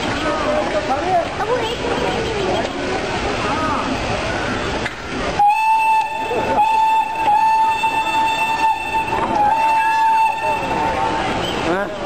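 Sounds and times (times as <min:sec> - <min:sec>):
station and train noise: 0:00.0 - 0:12.0
steam locomotive whistle: 0:05.4 - 0:11.4.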